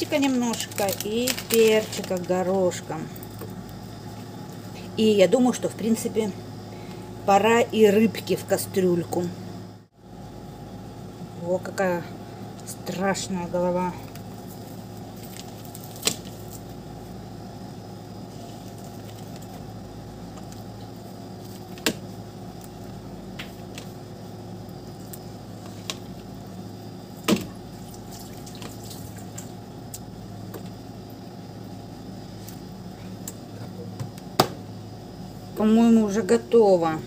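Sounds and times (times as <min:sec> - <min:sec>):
steady low hum: 0:00.0 - 0:37.0.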